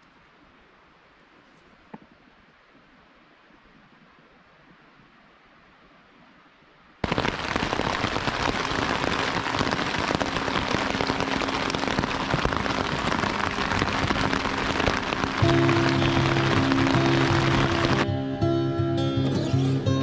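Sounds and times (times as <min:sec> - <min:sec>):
heavy rain falling: 0:07.0 - 0:18.1
music: 0:15.2 - 0:20.0.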